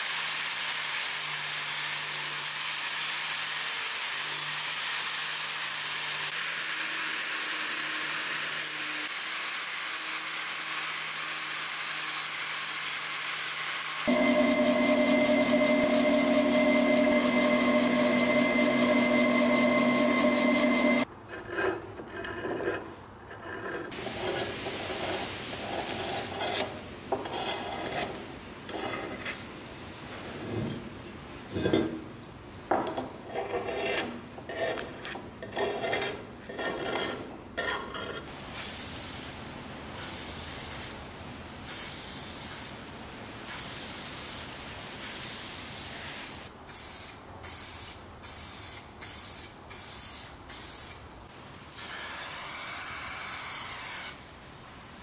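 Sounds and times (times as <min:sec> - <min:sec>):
drill press humming: 0:14.1 - 0:21.0.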